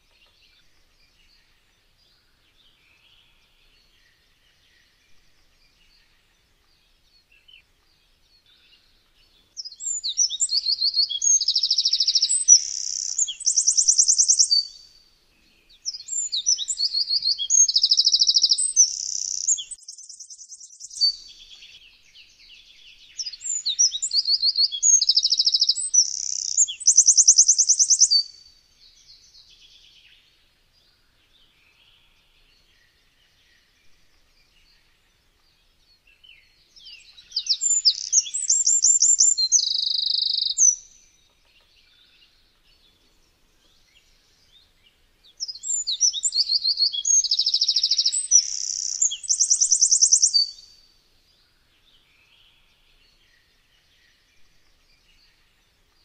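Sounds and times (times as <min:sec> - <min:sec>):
wren singing: 0:00.1 - 0:15.0, 0:15.6 - 0:30.2, 0:31.4 - 0:55.8.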